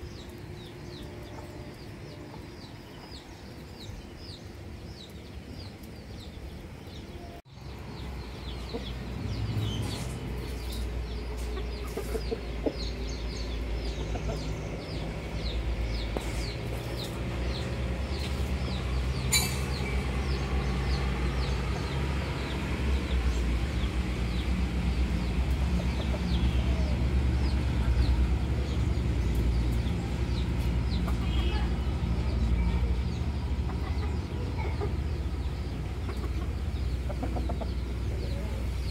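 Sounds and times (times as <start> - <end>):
roosters clucking softly: 9.8 - 15.1, 29.3 - 38.9.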